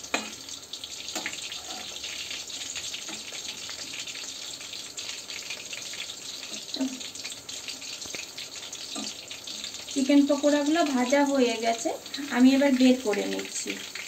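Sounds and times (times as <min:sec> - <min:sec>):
deep-frying sizzle: 0:00.0 - 0:14.0.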